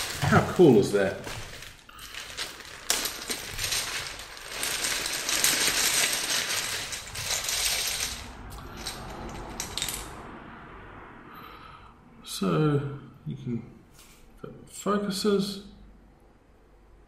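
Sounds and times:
plastic keycaps clattering on countertop: 0:01.3 - 0:10.0.

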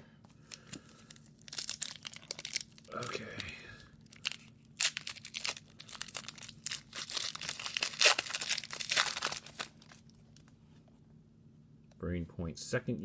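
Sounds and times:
foil wrapper tearing and crinkling: 0:01.1 - 0:03.1, 0:04.1 - 0:10.1.

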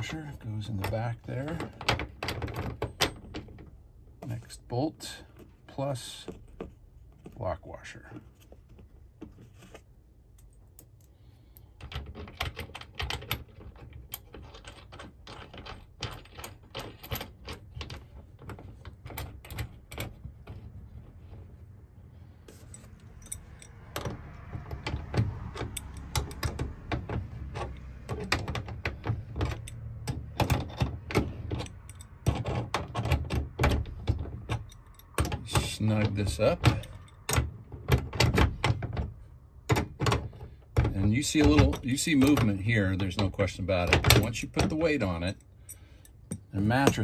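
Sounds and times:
metallic clicks and rattles: 0:10.3 - 0:21.6, 0:22.5 - 0:47.0.

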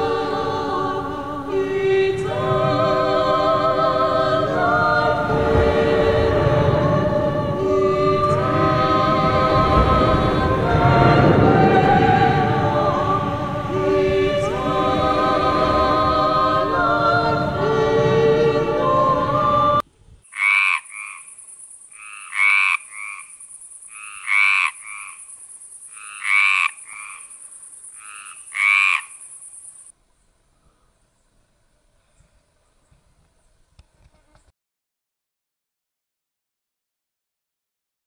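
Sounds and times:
choral music: 0:00.0 - 0:19.8
high-pitched hiss: 0:00.0 - 0:31.3
frog croaking: 0:20.3 - 0:29.9.

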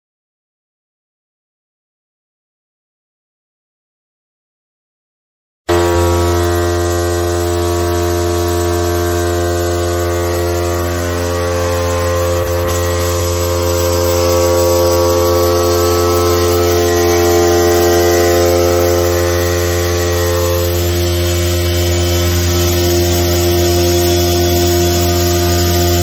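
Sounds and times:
vibration machine humming: 0:05.7 - 0:26.0.

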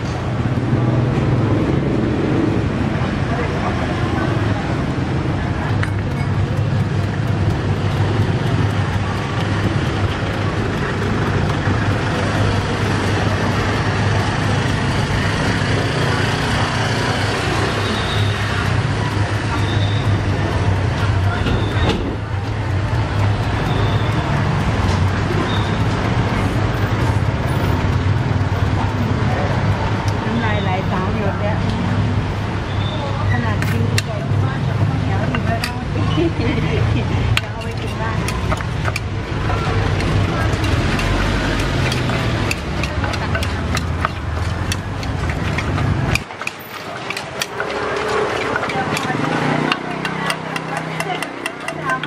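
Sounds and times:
road traffic hum: 0:00.0 - 0:52.0
faint voices: 0:02.8 - 0:52.0
wooden pestle knocking in mortar: 0:05.7 - 0:16.7, 0:35.2 - 0:52.0.

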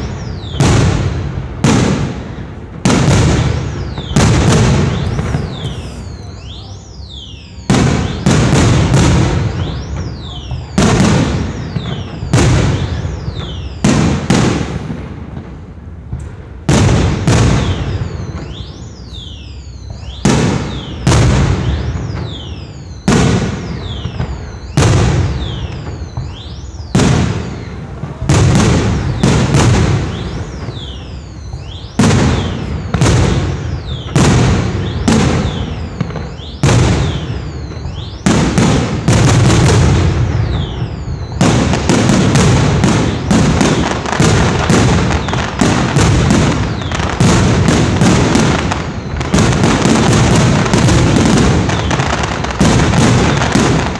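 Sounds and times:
falling firework whistles: 0:00.0 - 0:15.6, 0:16.2 - 0:53.9
firework shells bursting: 0:02.8 - 0:06.6.

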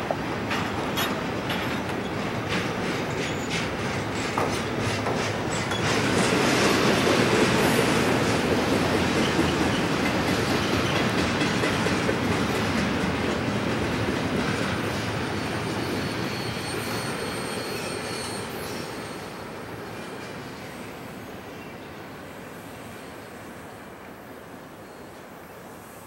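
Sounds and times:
freight train rolling past: 0:00.0 - 0:26.0
high wheel squeal: 0:15.3 - 0:20.8.

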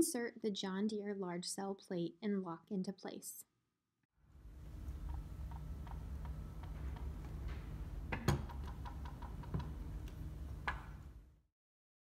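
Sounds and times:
low steady hum: 0:04.2 - 0:11.5.

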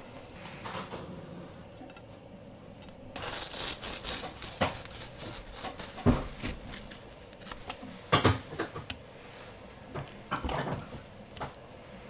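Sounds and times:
wet rubbing and peeling of fish: 0:03.1 - 0:08.0.

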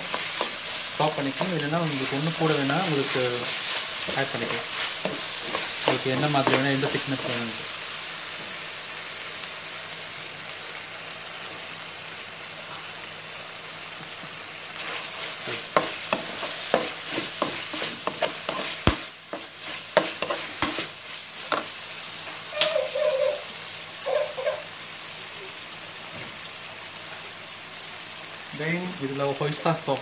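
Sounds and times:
metal spoon scraping a pan: 0:00.0 - 0:07.6, 0:14.8 - 0:21.7
food sizzling in a wok: 0:00.0 - 0:30.0.

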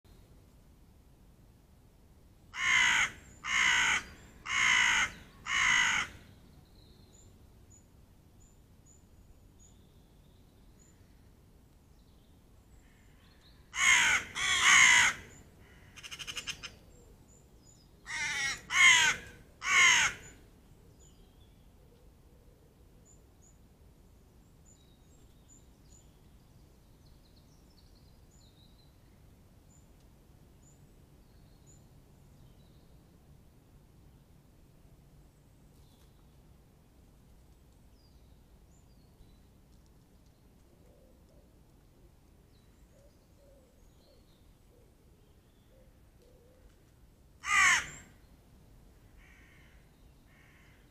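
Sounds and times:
crow cawing: 0:02.6 - 0:06.2, 0:13.8 - 0:16.7, 0:18.1 - 0:20.4, 0:47.4 - 0:48.1, 0:49.2 - 0:50.9.

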